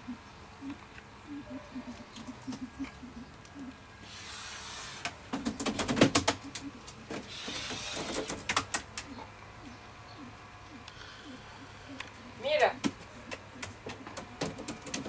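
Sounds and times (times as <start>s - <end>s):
pheasant clucking softly: 0.1s - 5.0s
rapid sharp clicks and rattles: 5.3s - 9.1s, 12.8s - 15.0s.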